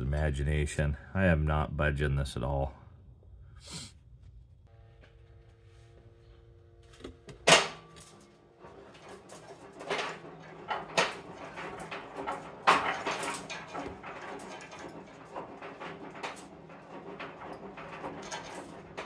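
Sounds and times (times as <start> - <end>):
knocks and scraping: 4.1 - 19.0
metal tools clanking: 7.4 - 19.0.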